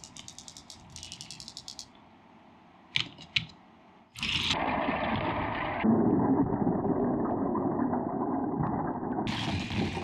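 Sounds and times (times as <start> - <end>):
plastic parts clicking: 0.0 - 2.0.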